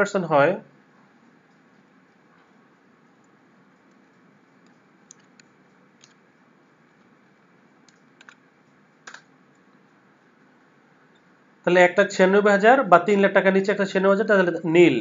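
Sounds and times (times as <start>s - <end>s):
room hiss: 0.0s - 15.0s
keyboard keystrokes: 4.6s - 6.2s, 7.9s - 8.4s, 9.0s - 9.3s.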